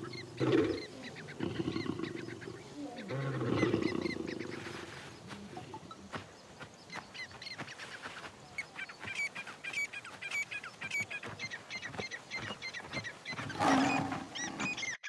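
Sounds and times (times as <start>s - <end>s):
high chirping animal calls: 0.0s - 6.1s, 6.9s - 15.0s.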